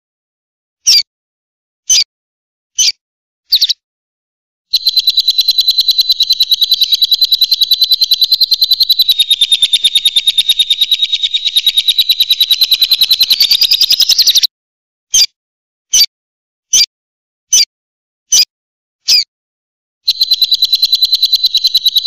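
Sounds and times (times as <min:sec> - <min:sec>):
lovebird chattering trill: 0:04.7 - 0:14.5, 0:20.1 - 0:22.0.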